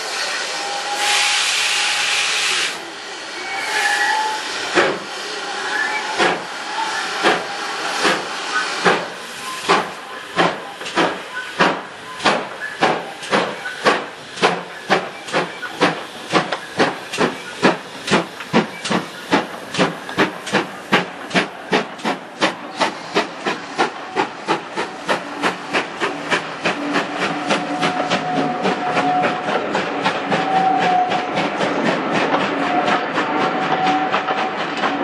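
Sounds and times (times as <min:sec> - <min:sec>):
steam locomotive exhaust chuffing: 0:00.0 - 0:35.0.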